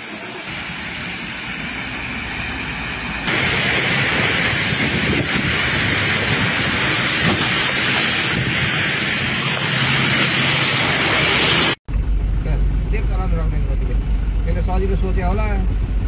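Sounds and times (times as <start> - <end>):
rain hissing: 0.0 - 11.8.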